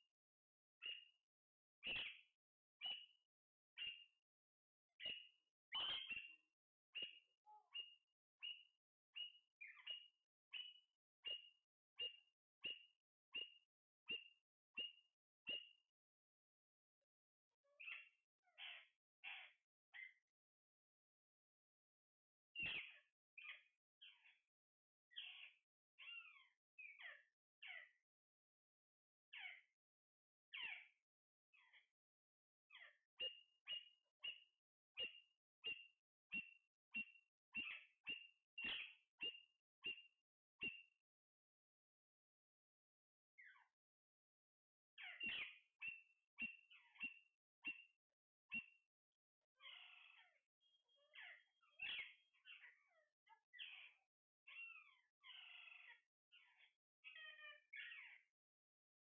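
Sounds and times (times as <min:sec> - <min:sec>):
parakeet high-pitched calls: 0:00.8 - 0:01.1, 0:01.8 - 0:03.2, 0:03.8 - 0:04.1, 0:05.0 - 0:06.4, 0:07.0 - 0:15.8, 0:17.8 - 0:20.2, 0:22.6 - 0:24.3, 0:25.1 - 0:28.0, 0:29.3 - 0:29.7, 0:30.5 - 0:30.9, 0:32.7 - 0:40.8, 0:43.4 - 0:43.6, 0:45.0 - 0:47.9, 0:49.6 - 0:58.2.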